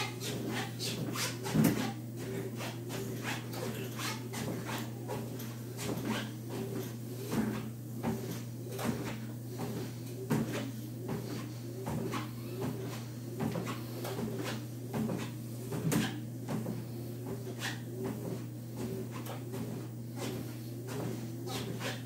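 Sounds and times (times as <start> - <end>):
footsteps on treadmill belt: 0.0 - 22.0
treadmill motor hum: 0.0 - 22.0.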